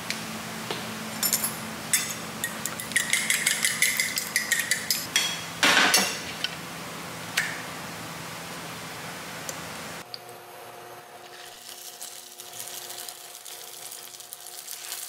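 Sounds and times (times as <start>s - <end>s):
fork beating egg on plate: 2.4s - 5.1s.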